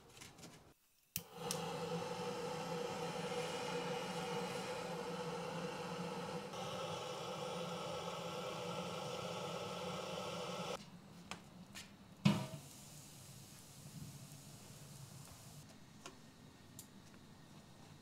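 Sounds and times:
butane torch hissing: 1.2 - 10.8, 12.3 - 15.7.

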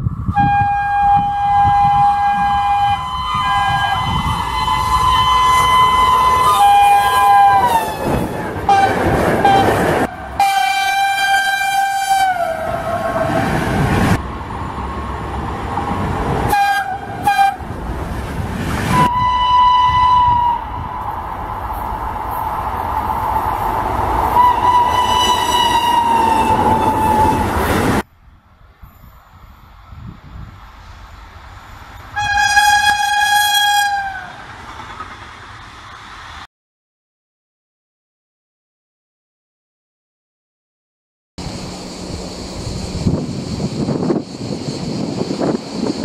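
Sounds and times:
train horn blasts: 0.3 - 13.8, 16.5 - 17.6, 18.9 - 21.1, 24.4 - 27.5, 32.2 - 34.4.

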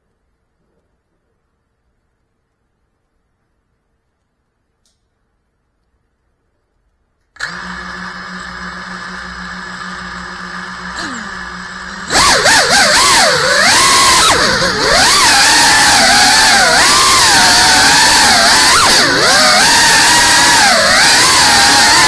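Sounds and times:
drone propeller whine: 10.8 - 22.0.

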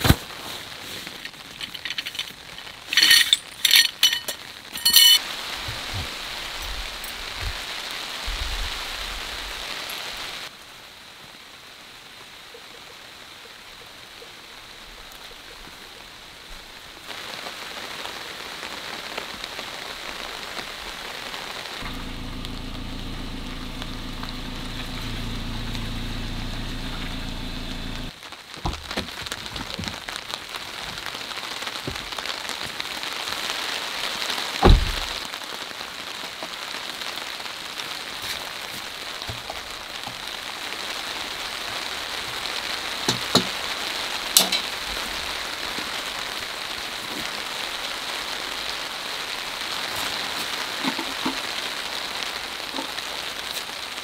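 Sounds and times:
rain on a tarp: 0.0 - 54.0
low hum: 21.8 - 28.1.

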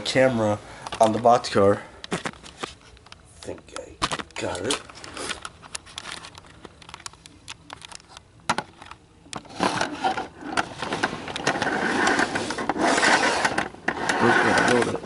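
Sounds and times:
toy electric train running: 11.5 - 15.0.

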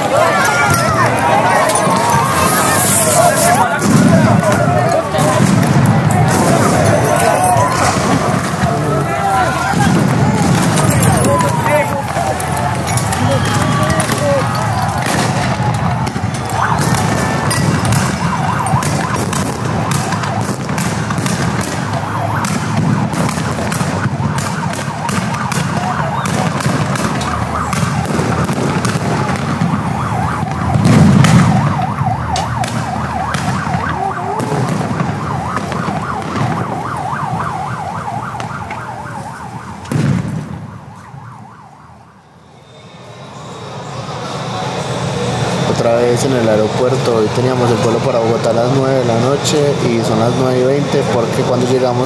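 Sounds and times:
sharp bangs and pops: 0.0 - 41.4
siren wailing: 0.0 - 52.0
loud boom: 0.1 - 36.8, 39.9 - 40.9.

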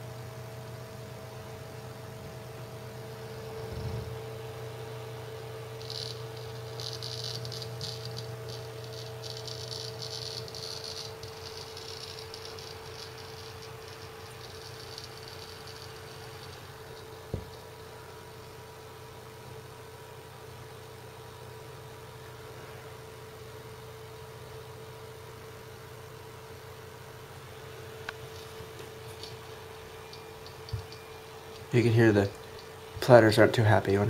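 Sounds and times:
hard drive spindle hum: 0.0 - 34.0
hard drive seek clicks: 2.2 - 18.7, 27.8 - 33.2.

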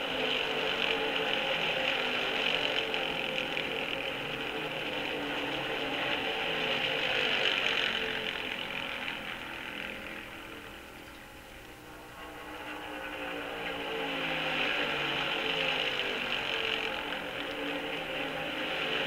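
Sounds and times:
stock car engines racing: 0.0 - 19.0.

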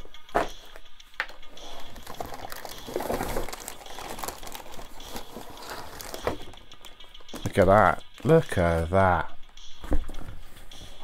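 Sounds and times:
plastic bag crinkling: 2.1 - 6.2.

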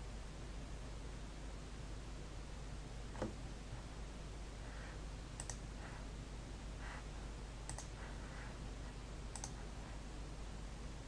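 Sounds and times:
faint steady hiss: 0.0 - 11.0
computer mouse clicks: 5.4 - 5.6, 7.6 - 8.0, 9.3 - 9.6.

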